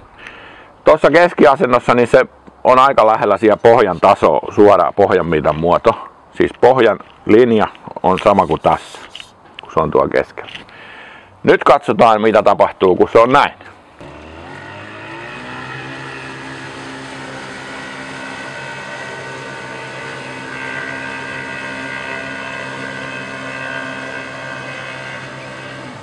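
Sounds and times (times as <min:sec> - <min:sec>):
outboard motor running under load: 0:14.0 - 0:26.0.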